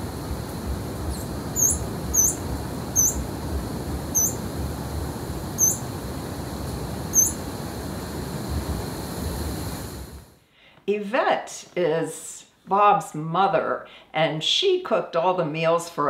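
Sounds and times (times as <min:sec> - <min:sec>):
steady background hiss: 0:00.0 - 0:16.0
bird high squeaky call notes: 0:01.6 - 0:02.4, 0:03.0 - 0:03.2.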